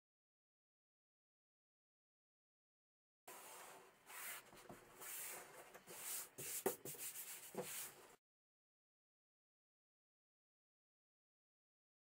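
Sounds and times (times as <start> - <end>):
hands rubbing paper: 3.3 - 8.2.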